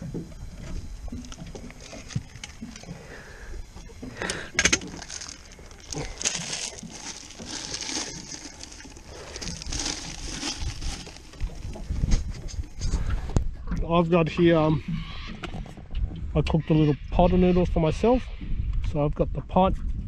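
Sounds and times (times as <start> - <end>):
plastic bags crinkling: 4.2 - 11.9.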